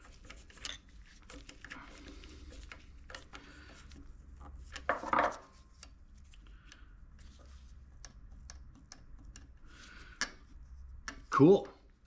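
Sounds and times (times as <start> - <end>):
small metal parts clicking and scraping: 0.0 - 3.4.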